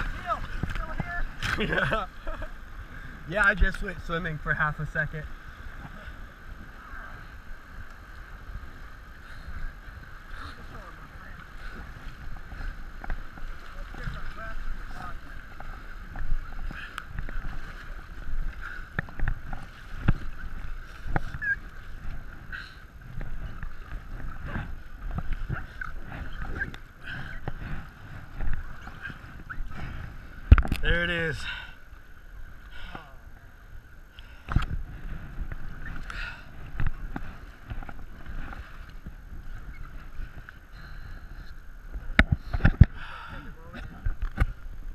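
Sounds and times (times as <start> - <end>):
paddle strokes splashing: 0.0 - 44.9
water sloshing: 0.0 - 44.9
wind buffeting microphone: 5.7 - 31.2.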